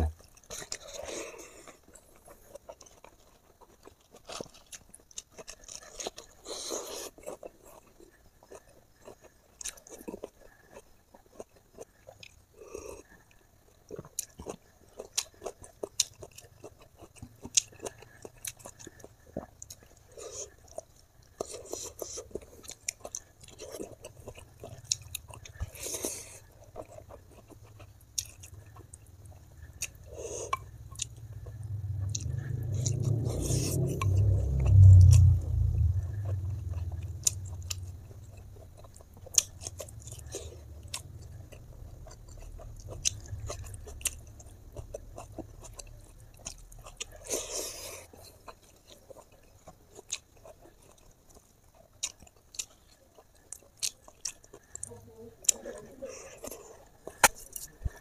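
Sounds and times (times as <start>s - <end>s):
chewing and lip smacks: 0.0s - 58.0s
low rumble: 30.5s - 45.9s.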